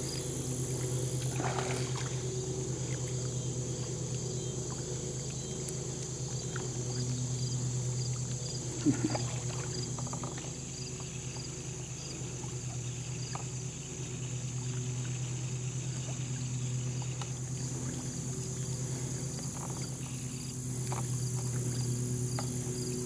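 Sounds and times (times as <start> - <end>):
crickets chirping: 0.0 - 23.0
steady low hum: 0.0 - 23.0
fish splashing at water surface: 1.3 - 2.3.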